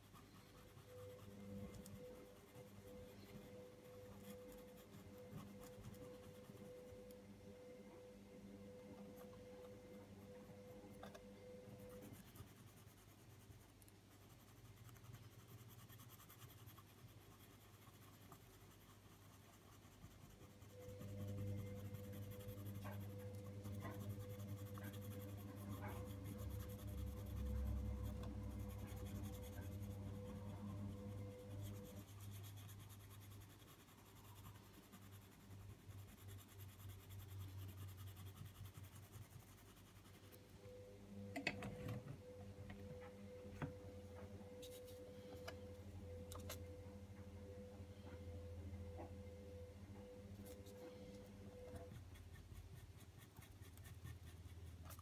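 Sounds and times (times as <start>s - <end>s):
low steady hum: 0.0s - 55.0s
pencil rubbing on paper: 11.8s - 40.2s, 51.8s - 55.0s.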